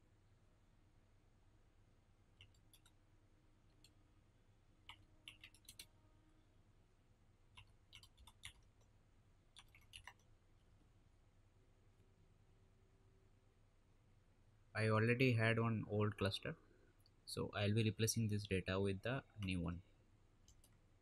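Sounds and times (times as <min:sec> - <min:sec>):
faint low hum: 0:00.0 - 0:21.0
keyboard typing: 0:02.4 - 0:03.0, 0:04.8 - 0:05.9, 0:07.5 - 0:08.9, 0:09.5 - 0:10.3.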